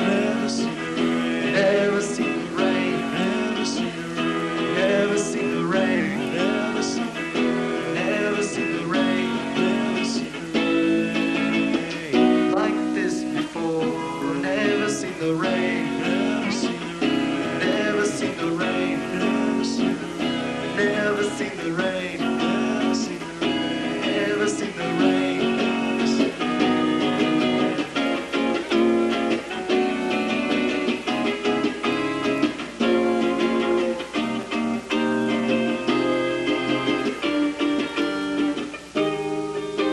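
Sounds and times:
guitar playing: 0.0 - 39.9
live band playing: 14.1 - 39.9.

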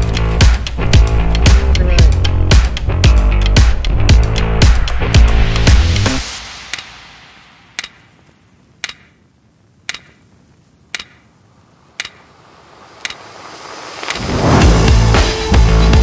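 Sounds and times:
sharp ticking like a clock: 6.7 - 7.0, 7.7 - 11.4, 12.0 - 12.3, 13.0 - 13.2.

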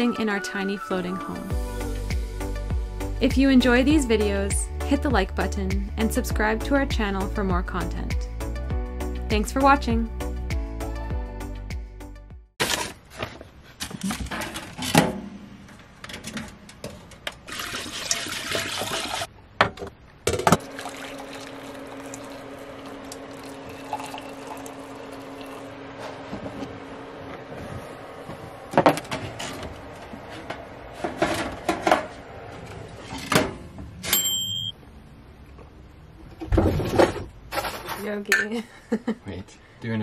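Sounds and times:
hot water pouring into mugs: 17.5 - 19.3, 20.6 - 25.8
bell ding: 34.1 - 34.8.

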